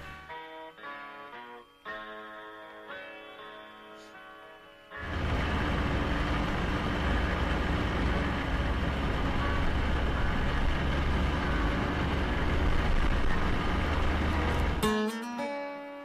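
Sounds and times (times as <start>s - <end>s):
snowmobile engine running: 5.0s - 14.8s.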